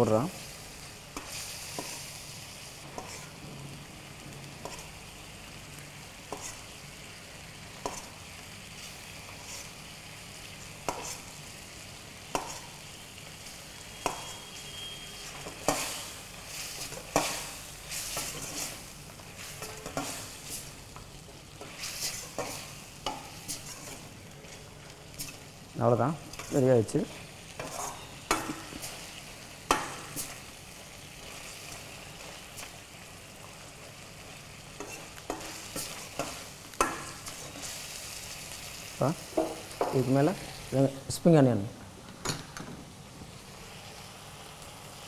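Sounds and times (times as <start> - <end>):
food sizzling: 0.0 - 45.0
metal spatula scraping a wok: 2.9 - 3.4, 6.3 - 6.7, 9.3 - 9.8, 10.9 - 11.4, 14.0 - 20.7, 27.6 - 29.0, 34.8 - 36.5.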